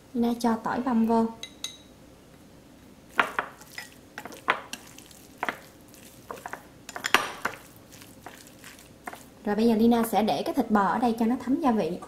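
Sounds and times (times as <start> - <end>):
soft wet mixing sounds: 3.1 - 12.0
chopsticks tapping glass bowl: 3.2 - 9.3.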